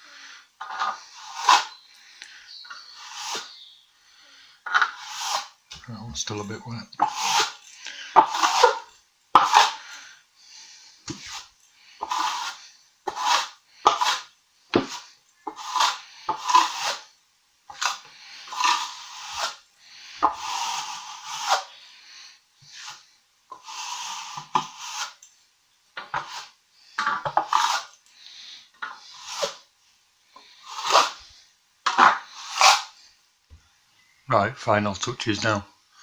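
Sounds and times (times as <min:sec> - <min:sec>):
plastering float scraping wall: 0:00.6 - 0:01.8, 0:02.7 - 0:03.6, 0:04.6 - 0:10.0, 0:10.7 - 0:17.1, 0:17.7 - 0:22.0, 0:22.6 - 0:25.2, 0:26.0 - 0:29.7, 0:30.4 - 0:31.3, 0:31.9 - 0:33.0.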